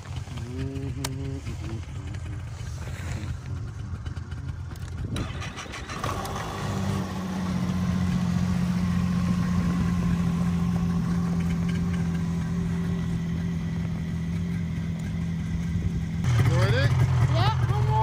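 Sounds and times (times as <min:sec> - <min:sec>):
snowmobile engine idling: 0:00.0 - 0:18.0.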